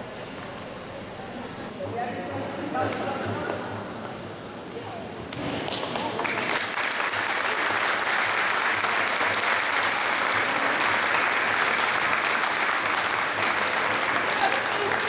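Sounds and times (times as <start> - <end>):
audience applauding: 5.7 - 15.0.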